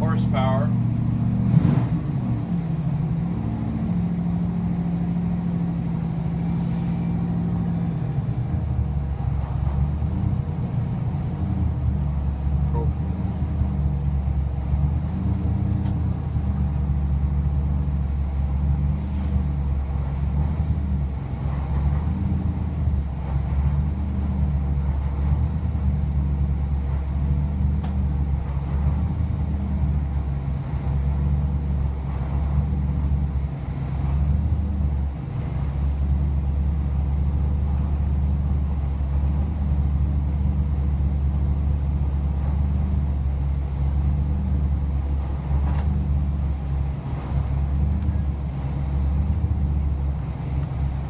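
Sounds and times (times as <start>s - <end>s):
engine running at steady speed: 0.0s - 51.0s.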